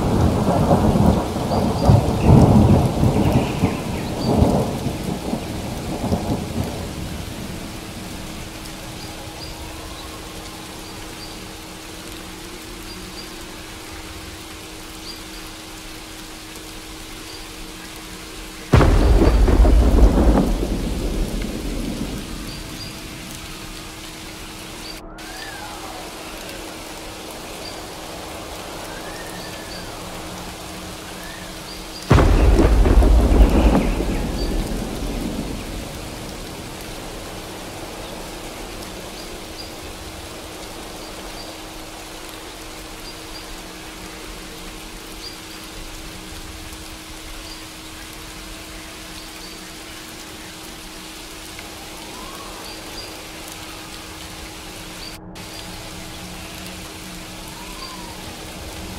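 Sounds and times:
thunderclap rumbling: 0:00.0 - 0:08.9, 0:18.7 - 0:27.0, 0:32.1 - 0:40.3
steady rain: 0:00.0 - 0:58.9.

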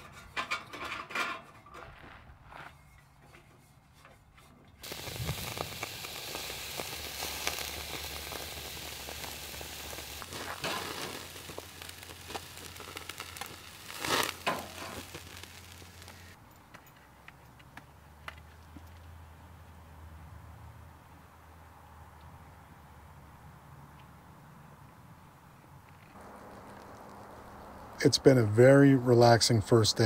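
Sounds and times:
burger patties sizzling on grill: 0:04.8 - 0:16.4, 0:26.2 - 0:28.4
metal spatula scraping grate: 0:10.6 - 0:11.1, 0:13.9 - 0:15.0.

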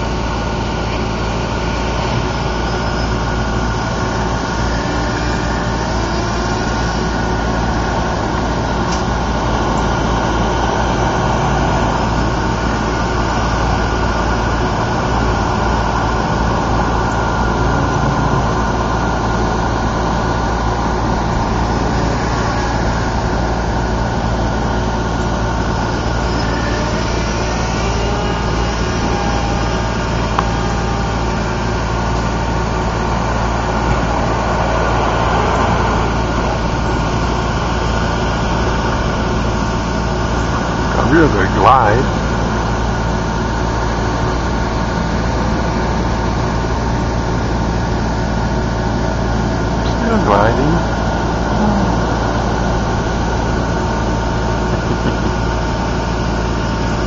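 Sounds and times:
low rumble: 0:00.0 - 0:41.2
faint whine: 0:00.0 - 0:47.8, 0:48.5 - 0:57.0
model airplane propeller droning: 0:00.0 - 0:57.0.

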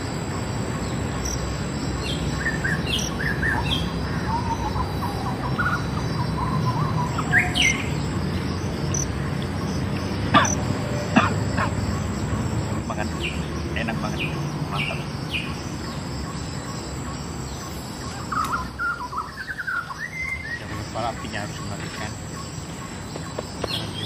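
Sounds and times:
faint insect ticking: 0:00.0 - 0:07.0, 0:07.6 - 0:18.8
birds chirping and calling: 0:00.0 - 0:24.0.

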